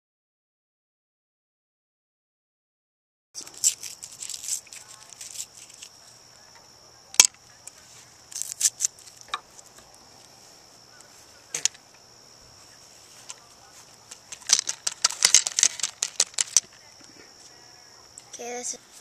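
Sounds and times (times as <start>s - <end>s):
steady high hiss: 3.4s - 19.0s
handling clicks and knocks: 13.2s - 17.2s.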